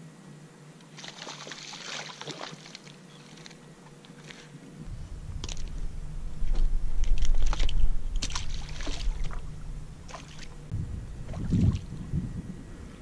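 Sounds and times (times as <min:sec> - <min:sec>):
water splashes: 0:00.9 - 0:03.5, 0:06.4 - 0:10.6, 0:11.2 - 0:12.0
microphone handling rumble: 0:04.8 - 0:13.0.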